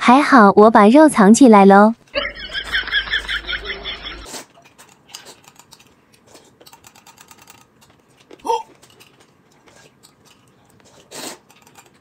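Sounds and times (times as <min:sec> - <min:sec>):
eating noises: 0:04.2 - 0:12.0
chopsticks clicking against bowls: 0:04.6 - 0:12.0.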